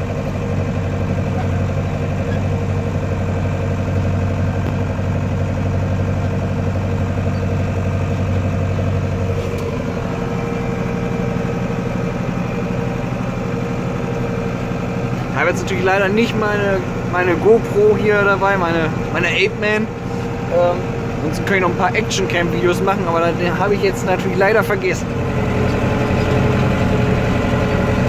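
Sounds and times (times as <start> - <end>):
tractor engine under load: 0.0 - 28.0.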